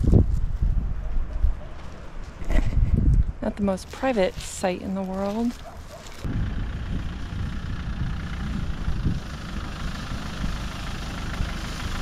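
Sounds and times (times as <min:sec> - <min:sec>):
truck engine rumbling: 0:03.7 - 0:12.0.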